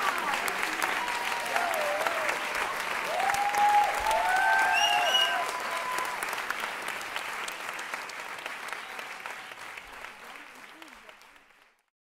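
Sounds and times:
cheering shouts: 0.0 - 6.4
audience applauding: 0.0 - 11.9.

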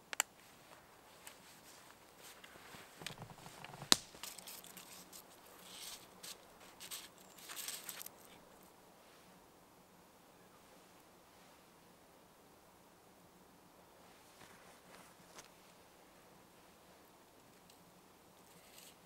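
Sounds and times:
nylon jacket rustling: 0.4 - 8.2
rustling and crunching: 0.4 - 8.7
sharp snap: 3.9 - 4.4.

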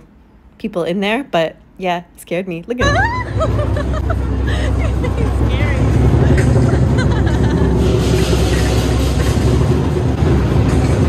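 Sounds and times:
crowd noise: 2.8 - 11.0
drum and cymbals playing: 3.0 - 11.0.

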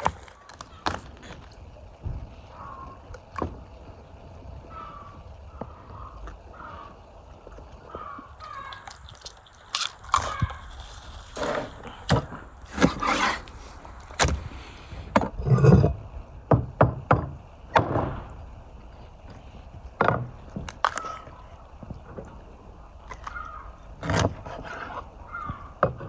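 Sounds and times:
bone cracking: 8.6 - 10.8.

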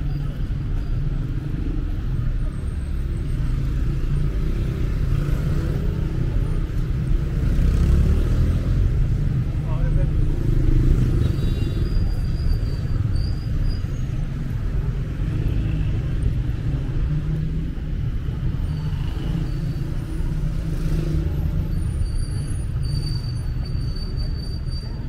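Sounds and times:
street traffic rumble: 0.0 - 25.0.

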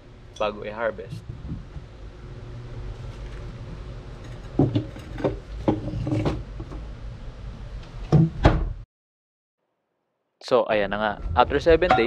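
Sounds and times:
wooden cupboard doors shutting: 8.1 - 8.8.

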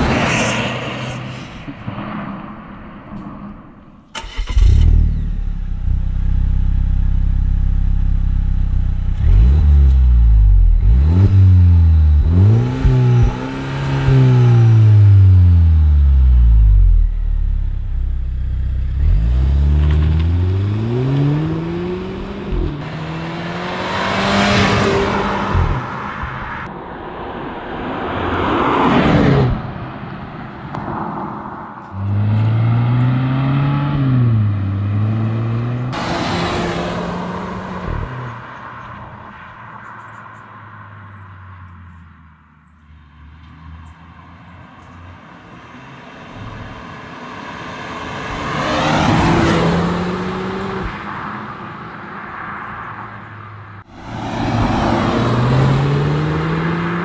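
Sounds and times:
rushing noise: 0.0 - 4.6
car engine revving: 4.2 - 26.7, 31.9 - 38.5, 48.2 - 51.1, 54.1 - 57.0.

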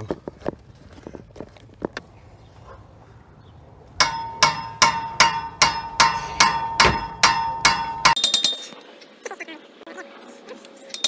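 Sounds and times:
sledgehammer striking metal wrench: 4.0 - 8.8.

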